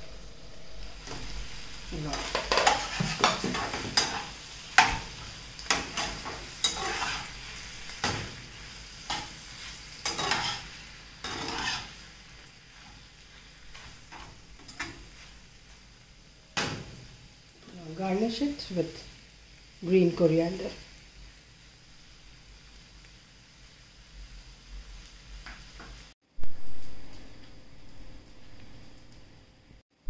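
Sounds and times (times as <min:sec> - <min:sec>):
food sizzling: 0:00.0 - 0:30.0
spatula scraping a pan: 0:02.1 - 0:05.1, 0:05.7 - 0:08.4, 0:09.0 - 0:12.2.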